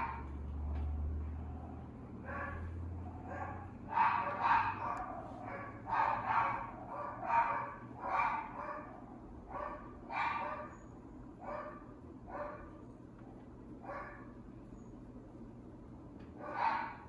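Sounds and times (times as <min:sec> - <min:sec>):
dog barking: 0:00.0 - 0:00.3, 0:02.2 - 0:10.8, 0:11.4 - 0:12.7, 0:13.8 - 0:14.4, 0:16.4 - 0:17.0.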